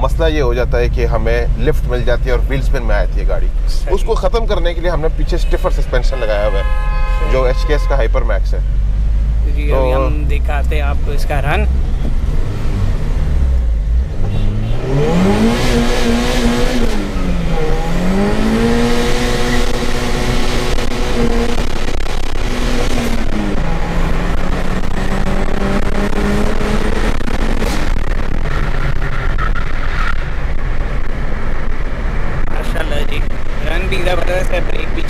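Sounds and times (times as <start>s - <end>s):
car engine accelerating: 8.3s - 35.0s.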